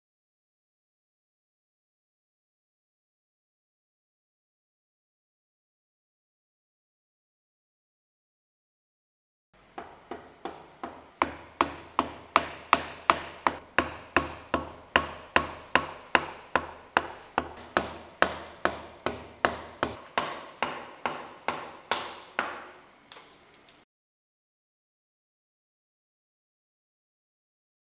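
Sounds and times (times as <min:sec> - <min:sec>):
hammer tapping chisel handle: 0:09.8 - 0:23.3.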